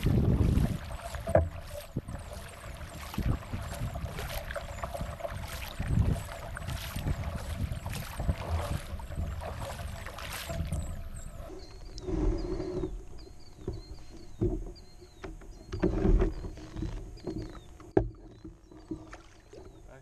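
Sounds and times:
wind buffeting microphone: 0.0 - 15.0
low bird calls: 0.0 - 20.0
wind and water noise: 0.0 - 20.0
bird chirping: 7.3 - 20.0.

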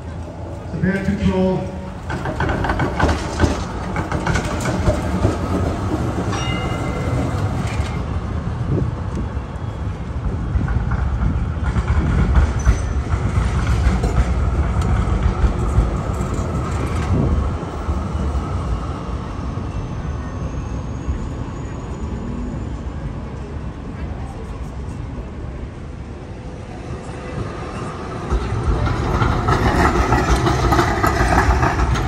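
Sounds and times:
tram wheels rumbling on rails: 0.0 - 32.0
clatter over the track: 0.2 - 9.2, 10.2 - 18.0, 26.6 - 32.0.

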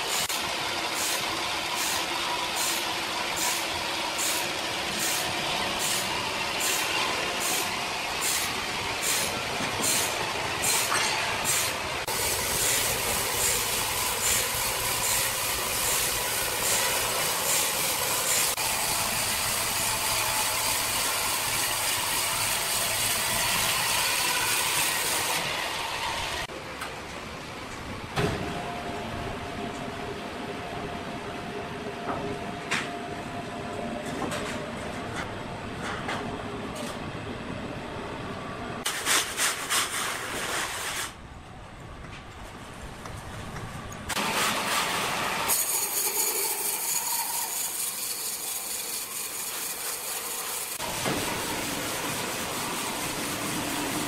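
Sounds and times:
band saw cutting timber: 0.0 - 26.5, 44.2 - 54.0.

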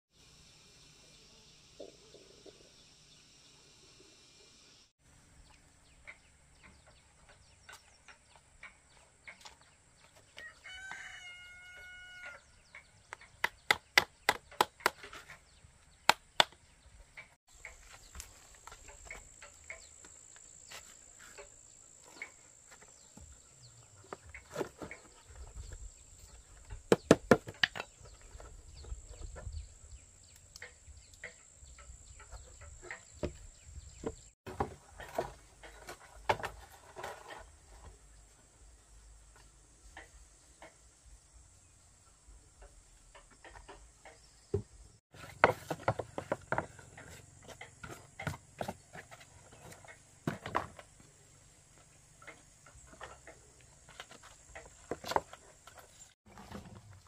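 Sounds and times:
rooster crowing: 10.4 - 12.4.

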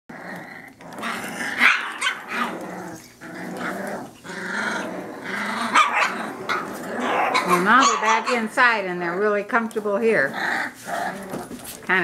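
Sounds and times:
puppies growling at play: 0.1 - 12.0
puppies barking: 0.9 - 9.2.

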